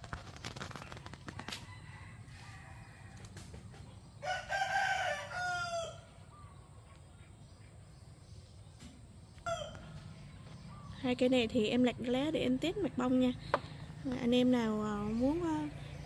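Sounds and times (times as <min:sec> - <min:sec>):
rooster crowing: 0:01.6 - 0:03.2, 0:04.2 - 0:06.2.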